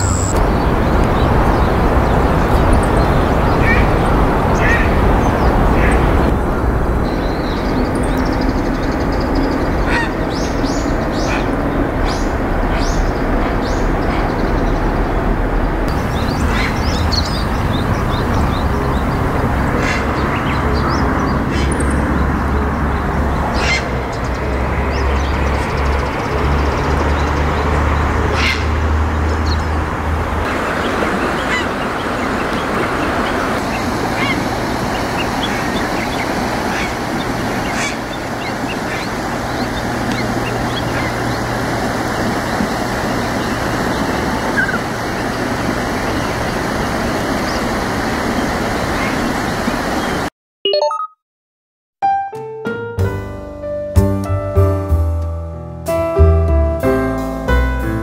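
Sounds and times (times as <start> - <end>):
heron croaking calls: 9.8 - 14.6, 16.0 - 22.1, 23.5 - 24.1, 28.3 - 28.8, 30.8 - 46.4.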